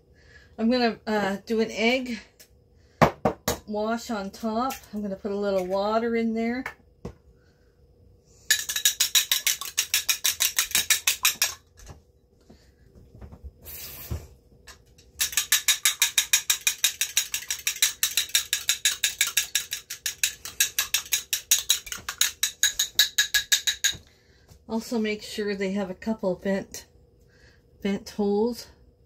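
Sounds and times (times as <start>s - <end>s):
fork beating egg in cup: 8.5s - 11.7s, 15.2s - 24.0s.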